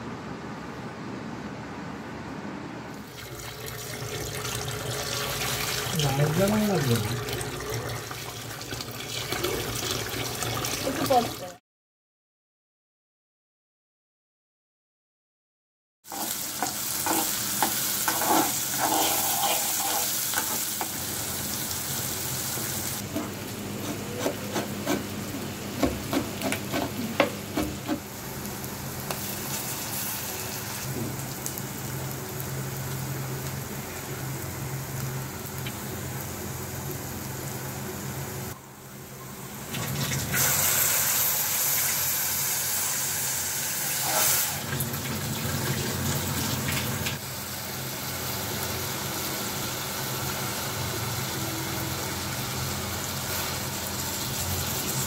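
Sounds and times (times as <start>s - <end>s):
onions sizzling in oil: 3.0s - 11.5s, 16.1s - 39.0s, 39.6s - 55.0s.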